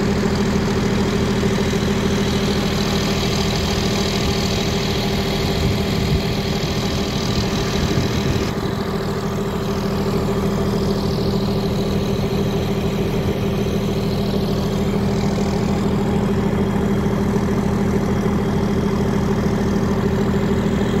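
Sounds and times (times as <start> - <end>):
engine idling: 0.0 - 21.0.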